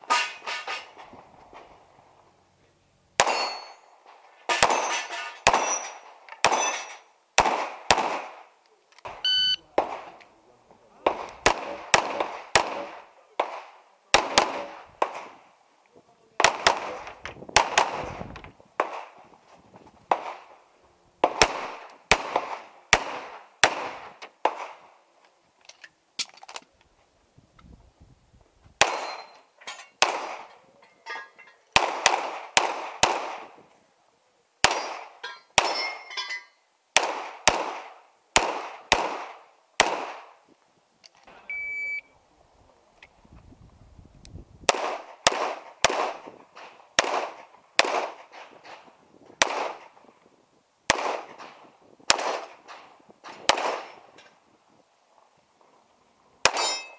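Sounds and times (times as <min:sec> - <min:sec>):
pistol shots echoing: 0:03.2 - 0:03.8, 0:04.6 - 0:08.5, 0:11.0 - 0:15.4, 0:16.4 - 0:18.0, 0:21.2 - 0:24.8, 0:28.8 - 0:29.3, 0:30.0 - 0:30.5, 0:31.8 - 0:33.5, 0:37.0 - 0:40.3, 0:44.7 - 0:46.3, 0:47.0 - 0:48.4, 0:49.4 - 0:49.9, 0:50.9 - 0:51.5, 0:52.1 - 0:52.6, 0:53.4 - 0:54.0.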